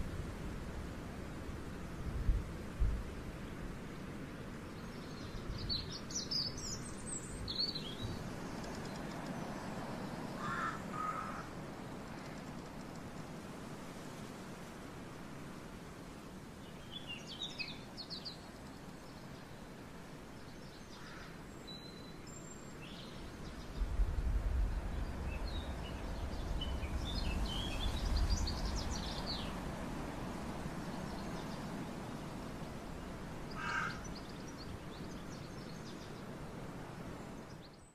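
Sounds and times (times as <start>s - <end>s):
steady outdoor hiss: 0.0s - 37.9s
small birds chirping: 4.6s - 11.4s, 16.6s - 19.6s, 20.3s - 36.4s.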